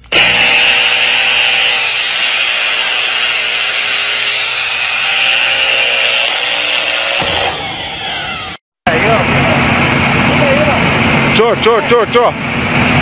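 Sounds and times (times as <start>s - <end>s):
angle grinder high whine: 0.0s - 13.0s.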